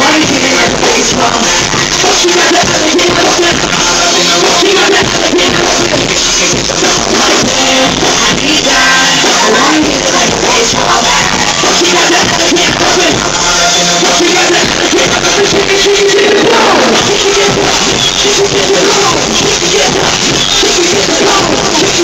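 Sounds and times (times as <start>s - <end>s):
hip-hop backing track: 0.0s - 22.0s
rapping into a microphone: 0.0s - 22.0s.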